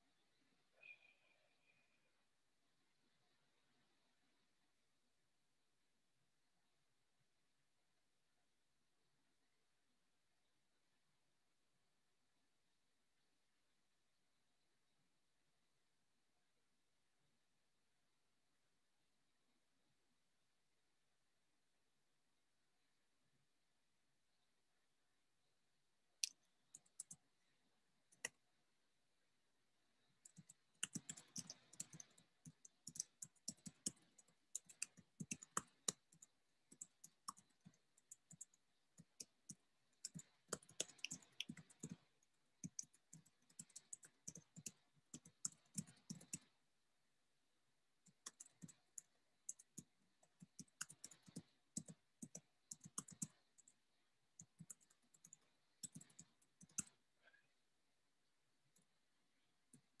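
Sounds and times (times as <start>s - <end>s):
computer keyboard typing: 26.2s - 27.2s, 30.2s - 46.6s, 48.1s - 53.8s, 54.4s - 57.0s.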